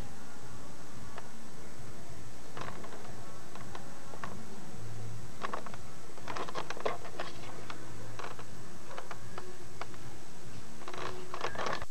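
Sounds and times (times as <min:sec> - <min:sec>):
steady low hum: 0:00.0 - 0:11.9
hands handling a camcorder: 0:05.4 - 0:10.0, 0:10.8 - 0:11.9.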